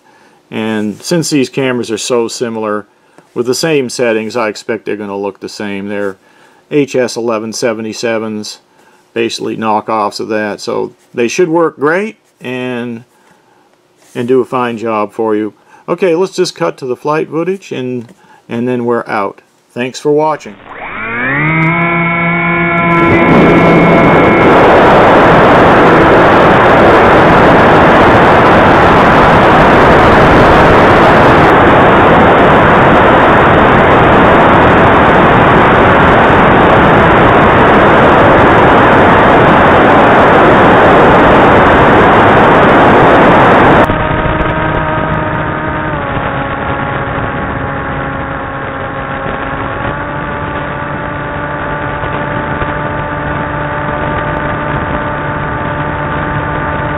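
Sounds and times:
quadcopter motor whine: 0:20.5 - 0:56.9.

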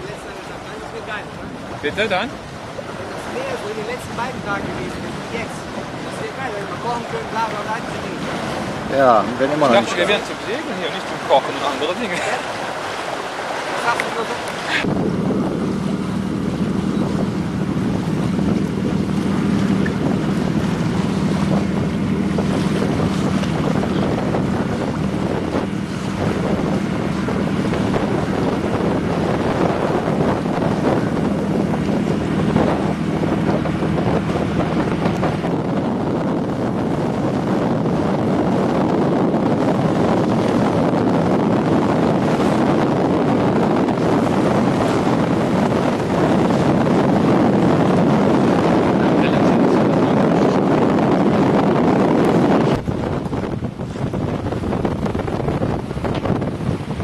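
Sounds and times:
water rushing past boat: 0:00.0 - 0:57.0
wind buffeting microphone: 0:00.0 - 0:57.0.

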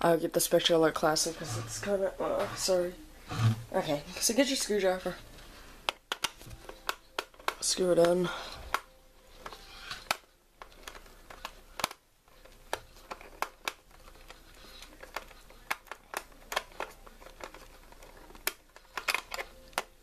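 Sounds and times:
screwdriver clicking on plastic: 0:08.7 - 0:20.0.

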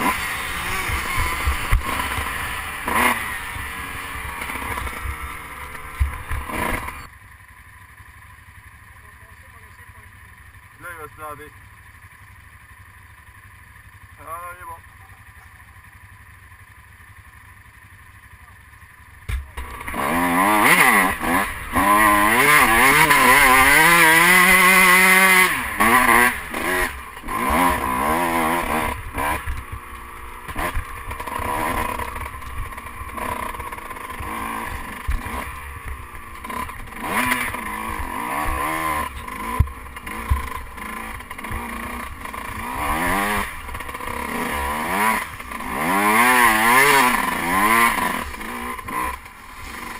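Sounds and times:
dirt bike engine revving: 0:00.0 - 0:07.1, 0:19.2 - 0:49.9
tyres on rough gravel: 0:19.3 - 0:49.9.

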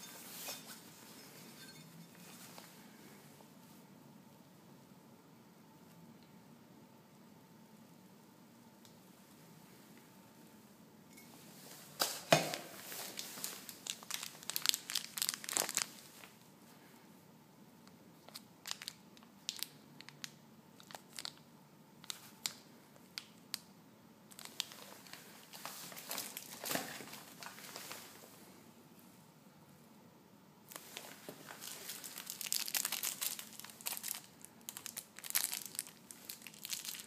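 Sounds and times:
plastic bag crinkling: 0:12.0 - 0:16.4, 0:18.3 - 0:21.4, 0:24.3 - 0:28.2, 0:30.7 - 0:37.0.

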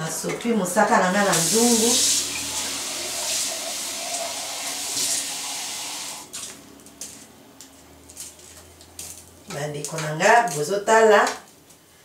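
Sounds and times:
liquid pouring into metal pot: 0:01.4 - 0:06.3.

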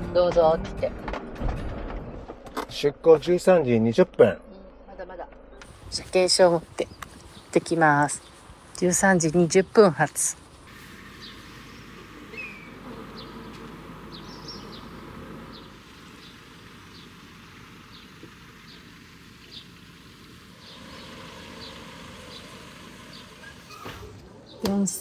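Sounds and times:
small birds chirping: 0:04.4 - 0:25.0
steady low hum: 0:10.4 - 0:23.4.

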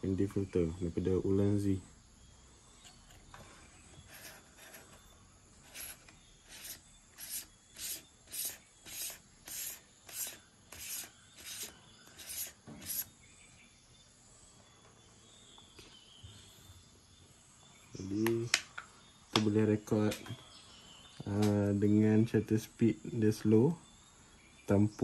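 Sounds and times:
filter scraping on lens threads: 0:02.8 - 0:05.0, 0:05.6 - 0:13.1.

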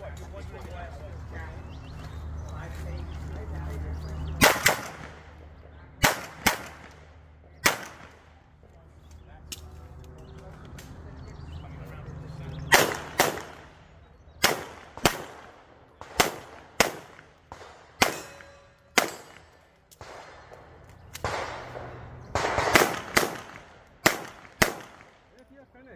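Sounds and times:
pistol shots echoing: 0:04.3 - 0:08.4, 0:12.7 - 0:25.4.

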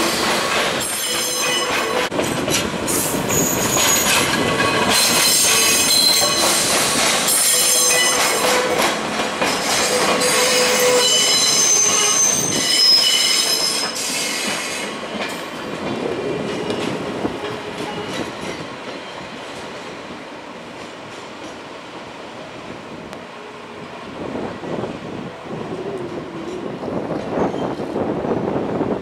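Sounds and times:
train wheels squealing: 0:00.0 - 0:02.1, 0:02.9 - 0:08.8, 0:09.5 - 0:15.2, 0:16.6 - 0:19.4, 0:27.3 - 0:27.9
train running sound: 0:00.0 - 0:29.0.

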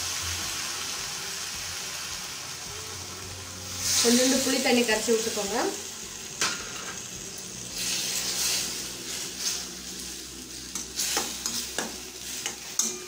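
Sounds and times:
okra sizzling in a pan: 0:00.0 - 0:13.0
spatula stirring and scraping: 0:07.8 - 0:13.0.

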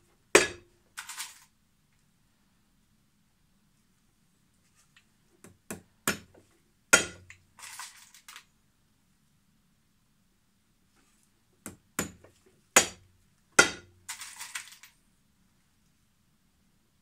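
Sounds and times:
hammer striking nail into sole: 0:07.0 - 0:07.2, 0:12.8 - 0:13.0, 0:13.6 - 0:13.9.

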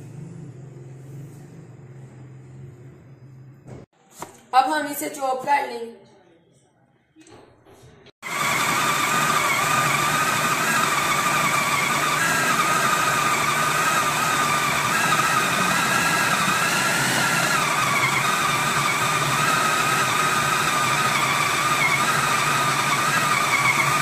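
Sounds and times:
food processor motor whining: 0:08.2 - 0:24.0.

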